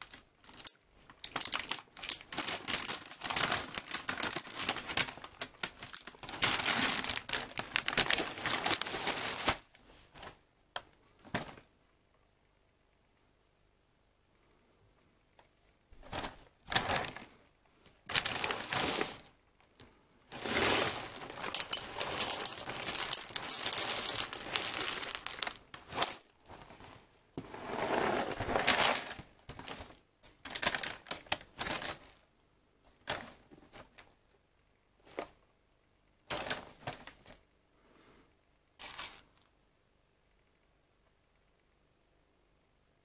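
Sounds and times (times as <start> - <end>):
packaging crinkling: 0.1 - 9.7, 18.1 - 19.3, 20.3 - 26.9, 28.3 - 32.2
cereal poured into glass bowl: 20.4 - 26.2.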